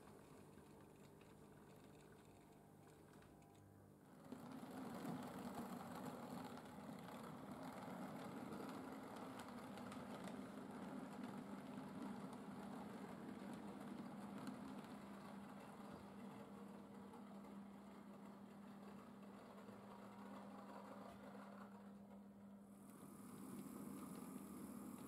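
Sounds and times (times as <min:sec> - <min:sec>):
wheels rolling on rails: 0:04.1 - 0:25.0
model train motor humming: 0:22.8 - 0:25.0.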